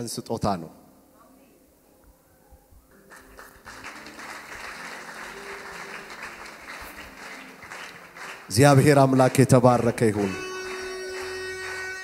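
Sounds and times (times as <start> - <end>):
congregation applauding: 3.0 - 12.0.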